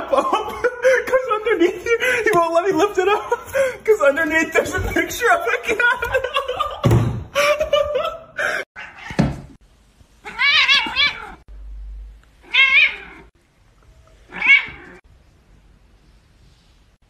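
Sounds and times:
cat meowing: 0:10.2 - 0:11.4, 0:12.4 - 0:13.3, 0:14.2 - 0:15.0.

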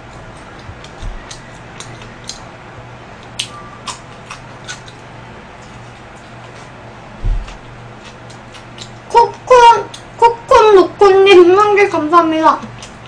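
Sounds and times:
pizza chewing with mouth clicks: 0:00.0 - 0:02.5, 0:03.2 - 0:06.8, 0:07.4 - 0:09.1, 0:12.6 - 0:13.0
low steady hum: 0:00.0 - 0:13.0.

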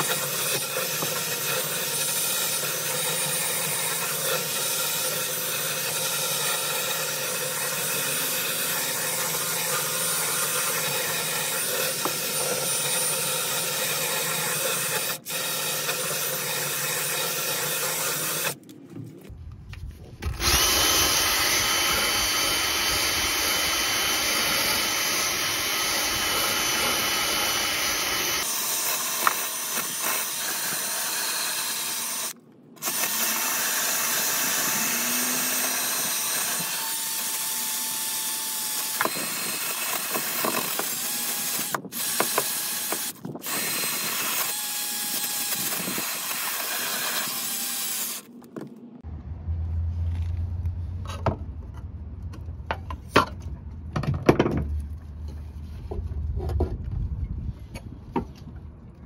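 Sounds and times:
drill wire brush scouring metal: 0:00.0 - 0:18.6, 0:20.4 - 0:48.3.

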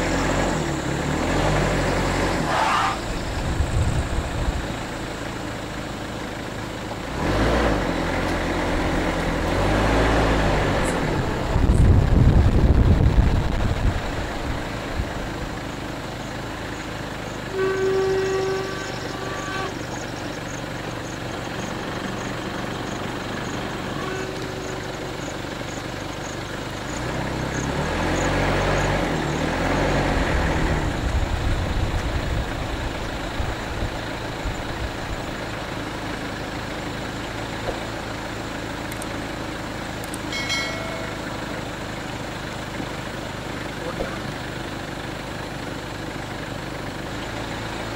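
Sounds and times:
motor vehicle rumbling on road: 0:00.0 - 0:47.9
vehicle horn: 0:02.4 - 0:03.2, 0:17.4 - 0:20.0, 0:23.4 - 0:25.2, 0:40.3 - 0:41.6.

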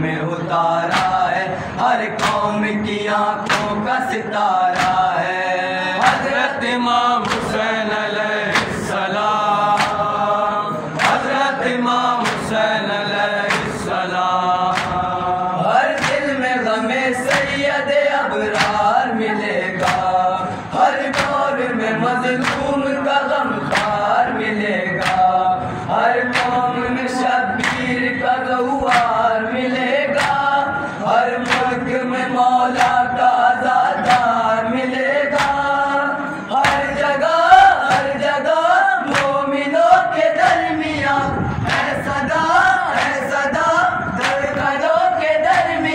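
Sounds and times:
men chanting in chorus: 0:00.0 - 0:45.9
rhythmic hand slaps on chest: 0:00.5 - 0:45.9.

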